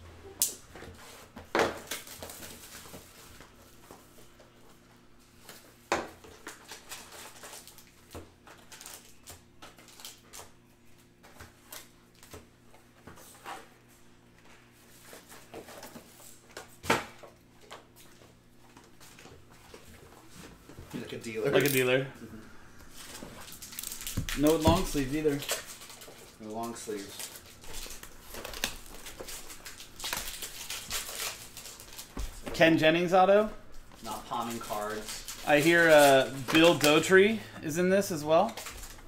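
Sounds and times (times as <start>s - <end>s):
faint steady hum: 0.0s - 39.0s
packaging rustling: 22.8s - 32.6s, 33.8s - 37.2s.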